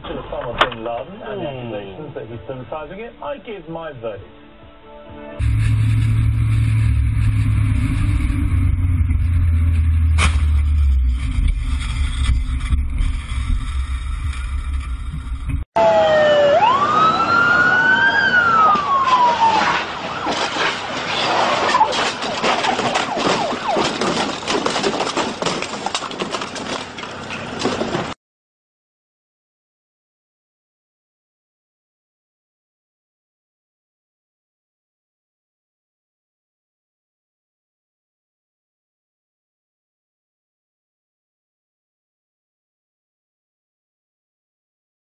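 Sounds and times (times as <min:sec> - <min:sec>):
car engine droning: 0:05.4 - 0:28.2
crackling street and engine noise: 0:05.4 - 0:28.2
police siren wailing: 0:15.8 - 0:24.6.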